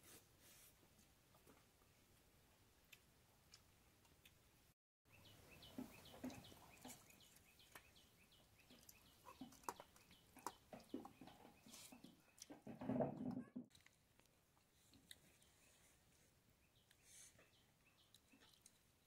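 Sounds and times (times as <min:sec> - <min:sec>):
small bird chirping: 0:05.1 - 0:12.6, 0:15.2 - 0:19.0
eating rice by hand: 0:08.6 - 0:19.0.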